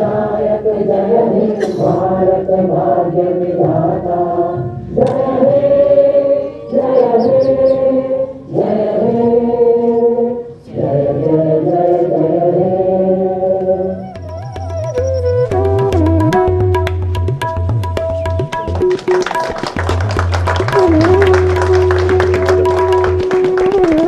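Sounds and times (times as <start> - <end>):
group singing in unison: 0.0 - 14.0.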